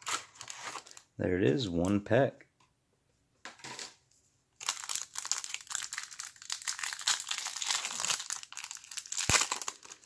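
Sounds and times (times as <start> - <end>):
plastic wrapper crinkling: 0.0 - 1.1, 4.6 - 10.0.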